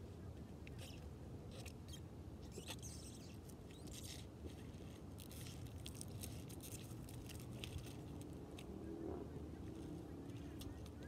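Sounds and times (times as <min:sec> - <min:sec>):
scraping and crunching: 0:03.7 - 0:08.7.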